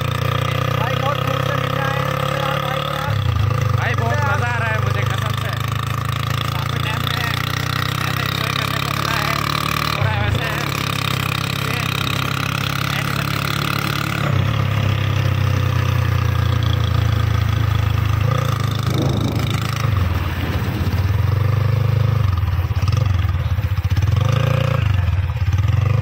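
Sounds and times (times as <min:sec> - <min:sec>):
motorcycle engine running: 0:00.0 - 0:26.0
wind rushing over microphone: 0:18.3 - 0:22.1.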